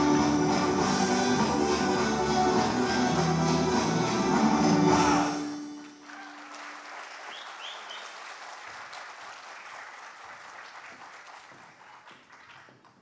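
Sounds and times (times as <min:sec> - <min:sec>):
audience applauding: 0:05.7 - 0:13.0.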